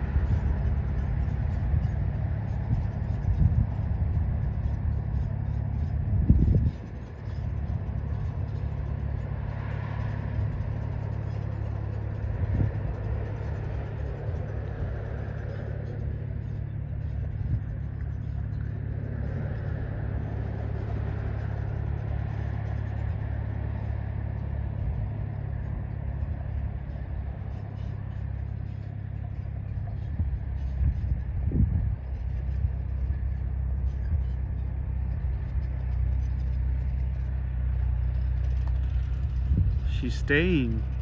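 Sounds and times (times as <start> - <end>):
wind buffeting microphone: 0.0 - 41.0.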